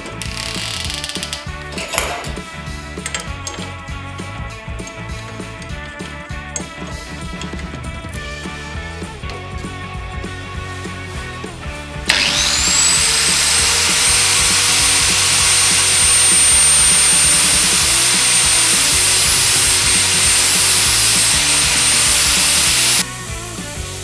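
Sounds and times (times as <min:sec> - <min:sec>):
drill bit grinding on disc: 0:00.1 - 0:01.4, 0:12.1 - 0:23.1
angle grinder motor whining: 0:12.1 - 0:23.1.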